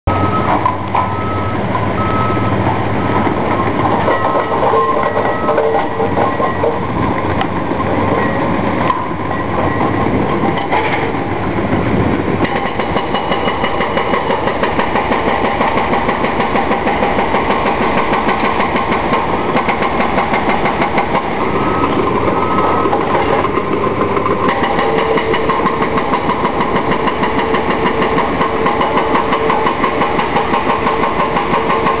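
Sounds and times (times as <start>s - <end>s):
diesel engine running: 0.0s - 32.0s
hydraulic breaker hammering concrete: 22.9s - 32.0s.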